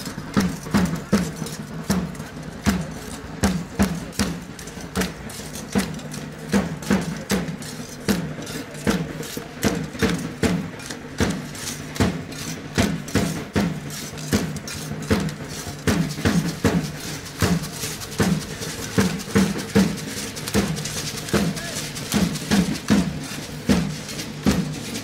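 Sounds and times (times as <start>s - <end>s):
drums beating steady rhythm: 0.0s - 25.0s.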